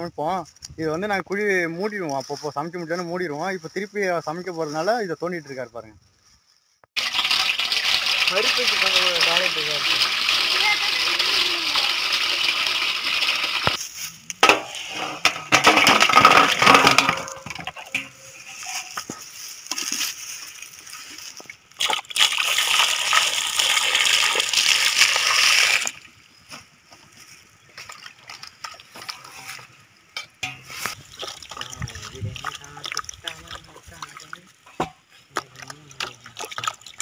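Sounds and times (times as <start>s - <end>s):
water pouring into metal pot: 7.0s - 13.8s, 21.8s - 26.0s, 30.4s - 34.5s, 35.4s - 37.0s
hands washing fruit in water: 7.0s - 13.9s, 15.6s - 26.0s, 30.4s - 37.0s
splashing and knocks: 14.4s - 20.8s, 21.8s - 26.0s, 27.8s - 37.0s.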